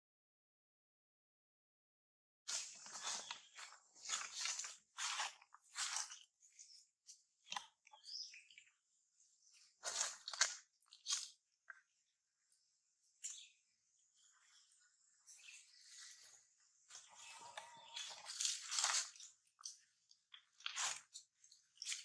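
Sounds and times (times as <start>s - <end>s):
dry leaves crunching and rustling: 2.5s - 6.2s, 17.2s - 19.3s.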